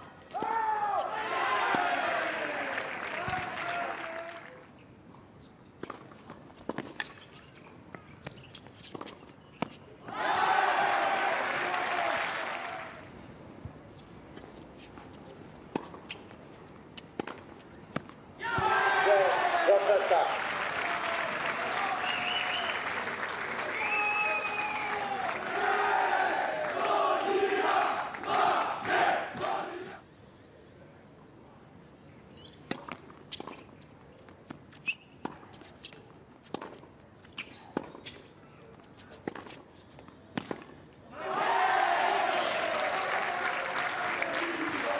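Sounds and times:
tennis ball bouncing: 0:05.8 - 0:07.2, 0:14.3 - 0:16.4, 0:17.0 - 0:18.7, 0:35.2 - 0:38.0
tennis ball bouncing and struck: 0:05.8 - 0:07.2, 0:17.0 - 0:18.2, 0:32.6 - 0:33.7, 0:36.4 - 0:38.0
crowd applause: 0:10.9 - 0:13.0, 0:19.7 - 0:27.0, 0:42.1 - 0:44.9
footsteps on tennis court: 0:32.7 - 0:41.0.

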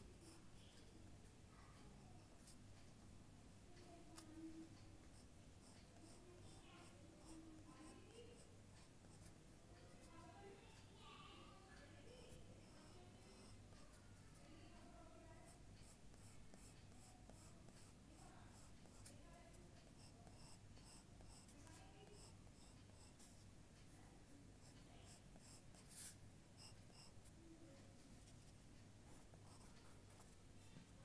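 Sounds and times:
pencil scratching on paper: 0:00.1 - 0:00.5, 0:05.0 - 0:09.4, 0:12.0 - 0:13.6, 0:15.3 - 0:24.0, 0:24.6 - 0:27.3, 0:29.1 - 0:30.4.

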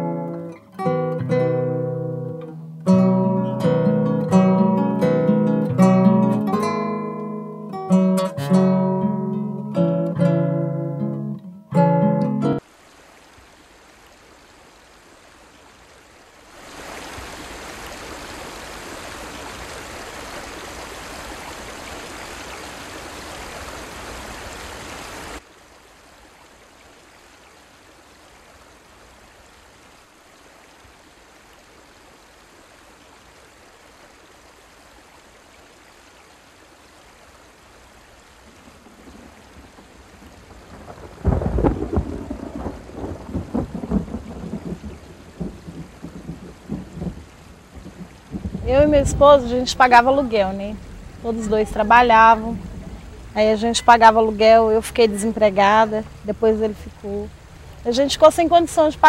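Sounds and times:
steady rain: 0:00.0 - 0:59.0
thunder rumble: 0:38.6 - 0:59.0.

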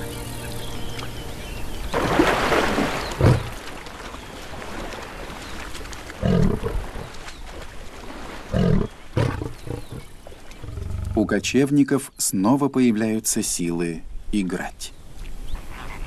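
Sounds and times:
lions growling: 0:08.5 - 0:11.4.

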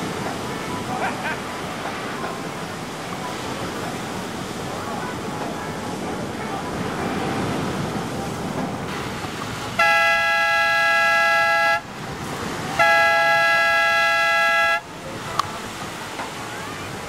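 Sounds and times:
surf washing: 0:00.0 - 0:17.0
two-note air horn blasts: 0:09.8 - 0:11.8, 0:12.8 - 0:14.9.

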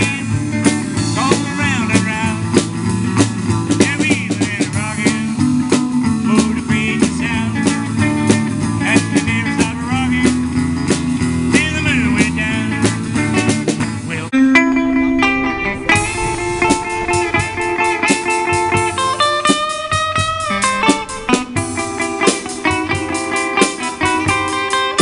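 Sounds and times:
electric guitar lead: 0:00.0 - 0:25.0
bass line: 0:11.5 - 0:24.4
drum kit beat: 0:15.4 - 0:25.0.

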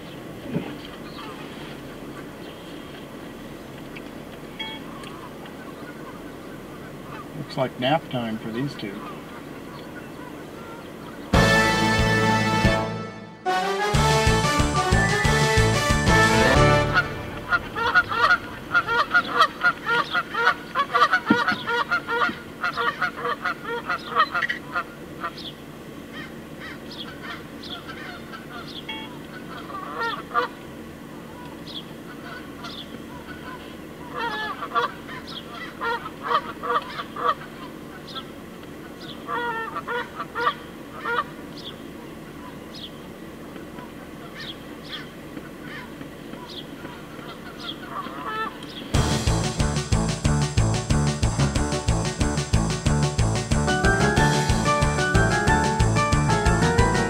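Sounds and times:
flock of birds calling: 0:00.0 - 0:03.0, 0:04.8 - 0:11.4, 0:14.8 - 0:43.0, 0:43.6 - 0:49.0
geese honking: 0:04.9 - 0:07.4, 0:08.5 - 0:25.5, 0:26.1 - 0:30.6, 0:31.2 - 0:41.4, 0:43.7 - 0:57.0
background music: 0:11.4 - 0:18.4, 0:49.0 - 0:57.0
steady low hum: 0:16.2 - 0:46.0.

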